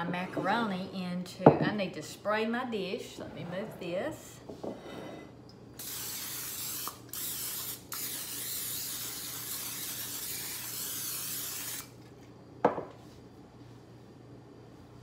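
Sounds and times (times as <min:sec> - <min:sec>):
aerosol spray hissing: 0:05.8 - 0:11.9.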